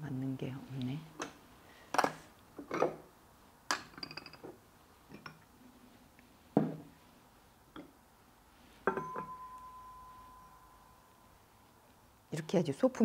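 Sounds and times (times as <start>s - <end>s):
ceramic pots knocking and clinking: 3.7s - 5.4s, 8.8s - 10.5s
ceramic pot ringing tone: 8.8s - 11.7s.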